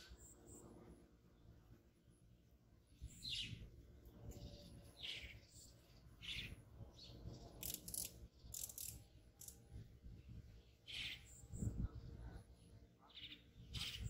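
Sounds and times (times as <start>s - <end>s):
faint bird chirps: 10.3s - 14.0s.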